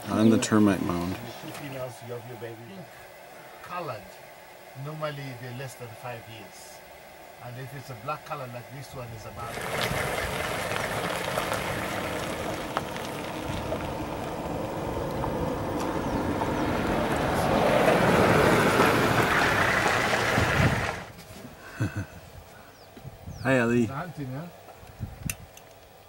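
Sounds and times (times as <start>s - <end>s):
wind: 0.0s - 26.0s
vehicle engine and road noise: 6.5s - 21.6s.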